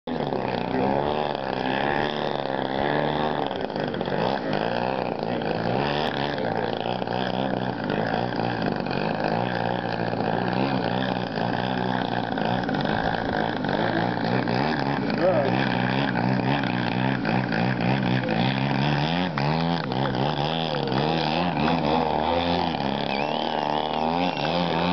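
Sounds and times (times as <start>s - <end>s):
model plane engine and propeller: 0.0s - 24.9s.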